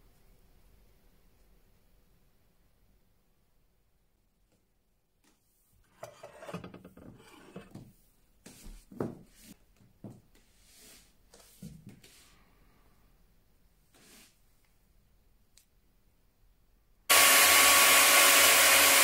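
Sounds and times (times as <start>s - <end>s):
metal object scraping on wood: 5.9s - 7.9s.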